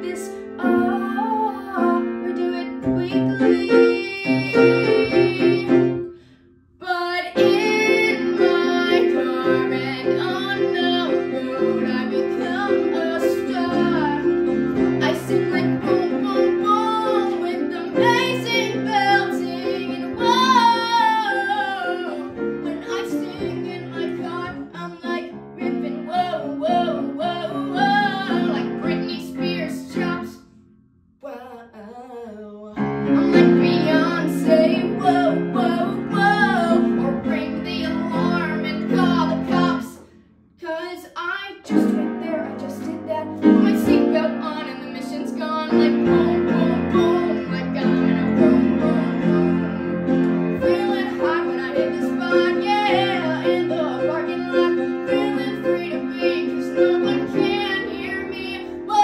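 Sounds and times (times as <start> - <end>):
girl singing: 0.0 - 30.6, 31.2 - 49.7, 50.5 - 59.0
instrumental accompaniment: 41.7 - 59.0.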